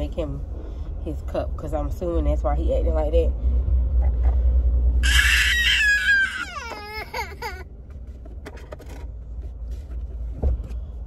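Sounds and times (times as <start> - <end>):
car engine hum: 0.0 - 11.0
young child crying: 5.0 - 7.7.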